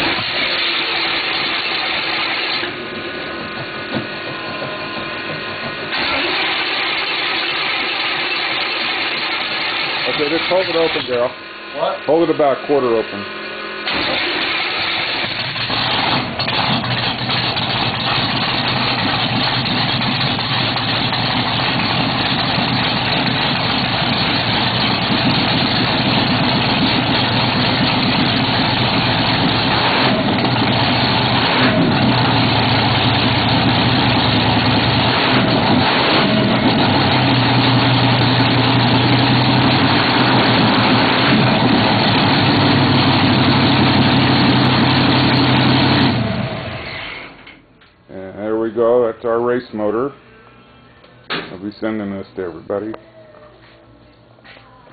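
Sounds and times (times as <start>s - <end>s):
race engine fast idle: 5.0s - 11.2s, 13.8s - 47.6s.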